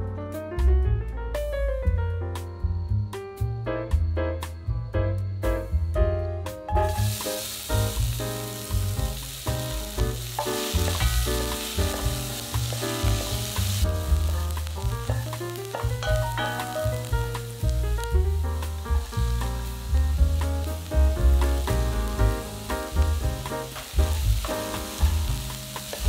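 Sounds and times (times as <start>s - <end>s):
onions sizzling in hot oil: 6.7s - 26.0s.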